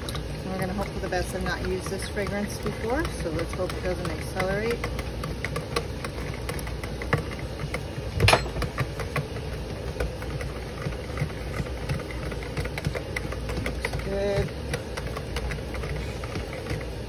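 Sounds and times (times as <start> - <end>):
whisk clicking against plastic bowl: 0.0 - 7.9, 8.6 - 17.0
low machine hum: 0.0 - 17.0.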